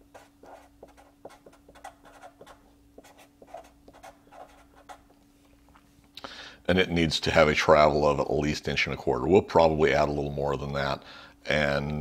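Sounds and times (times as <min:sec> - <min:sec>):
marker pen scratching on paper: 0:00.0 - 0:05.1
faint steady hum: 0:00.0 - 0:12.0.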